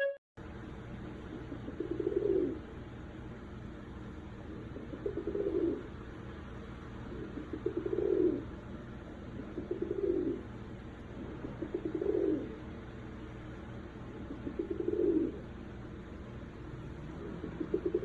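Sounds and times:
pigeon cooing: 1.3s - 2.7s, 4.6s - 5.9s, 7.1s - 8.5s, 9.3s - 12.8s, 14.2s - 15.5s, 16.9s - 18.0s.

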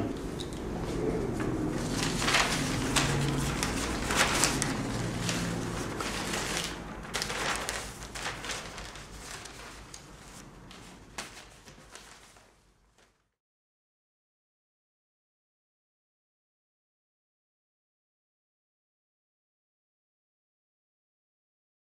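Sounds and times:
paper rustling and crackling: 1.7s - 13.3s.

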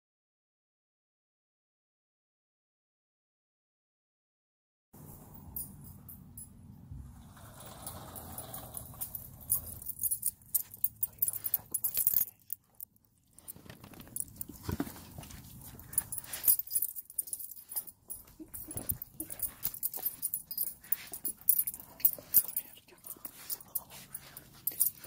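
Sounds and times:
clicks and rustles from petting: 9.1s - 25.0s
dog whimpering: 18.3s - 19.8s.

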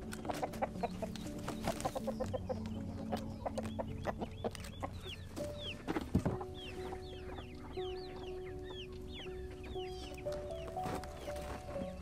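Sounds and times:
chickens clucking: 0.0s - 12.0s
soft held music notes: 0.0s - 12.0s.

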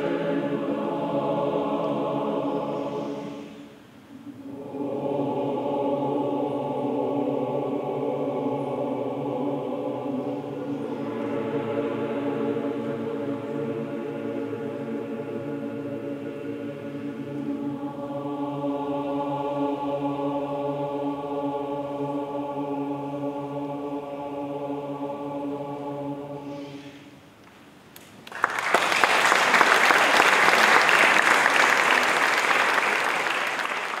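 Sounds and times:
choir singing sustained chord: 0.0s - 27.2s
audience applause: 28.2s - 34.0s.

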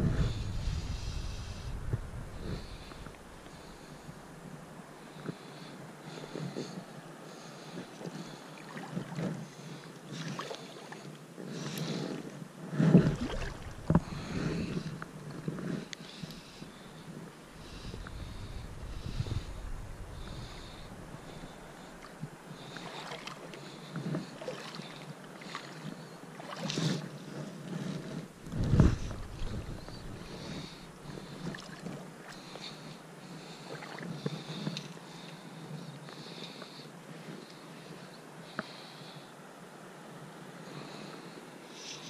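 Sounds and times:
fishing line soft hisses: 0.0s - 4.2s, 16.2s - 23.2s
river noise: 0.0s - 42.0s.

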